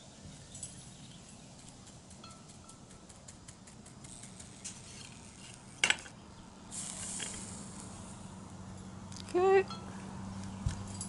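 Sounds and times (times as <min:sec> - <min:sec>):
brush scratching metal: 0:02.9 - 0:06.0
flux hissing sizzle: 0:02.9 - 0:09.1.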